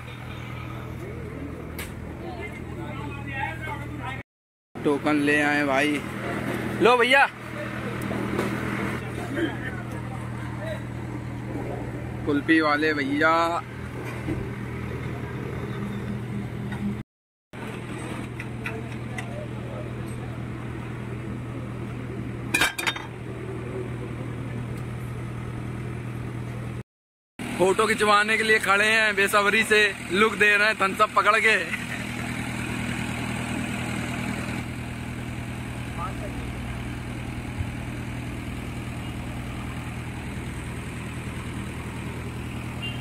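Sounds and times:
engine idling: 27.4 - 43.0.

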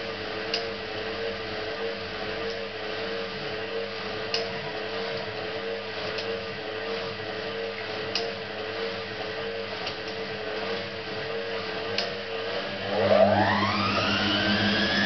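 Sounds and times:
washing machine motor whining: 10.9 - 15.0.

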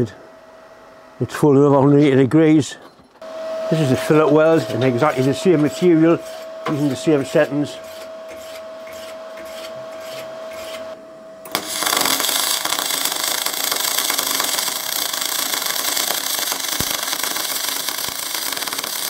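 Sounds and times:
welding arc crackling hiss: 11.5 - 19.0.

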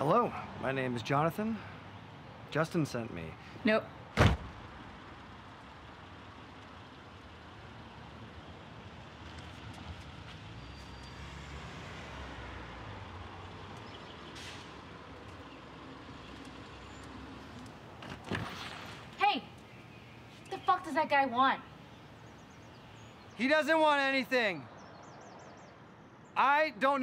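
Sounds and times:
street traffic hum: 0.0 - 27.0
wooden door slamming: 4.2 - 4.6
car passing: 4.5 - 25.8.

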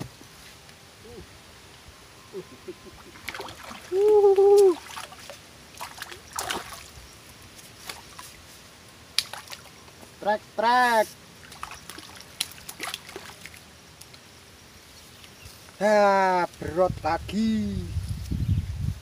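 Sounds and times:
fish splashing in water: 3.0 - 7.0, 9.1 - 9.8, 11.4 - 14.1
man shouting: 3.9 - 4.8.

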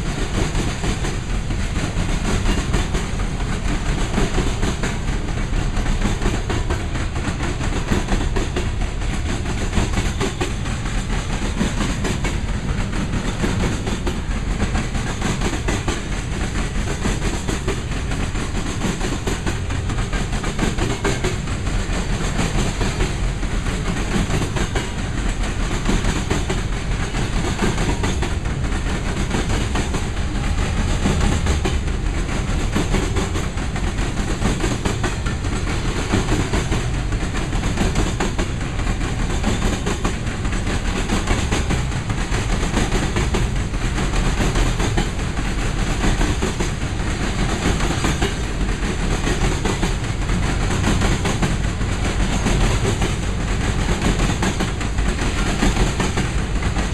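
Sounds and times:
steel wheels rumbling on rail: 0.0 - 56.9
wheel clicks over rail joints: 0.2 - 56.9.

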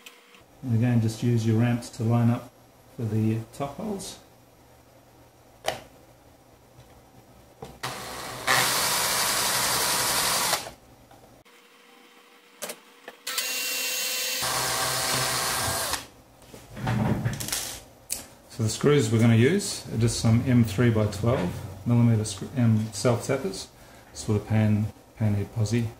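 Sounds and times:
drill drilling through plastic: 7.8 - 10.7, 13.3 - 16.1.

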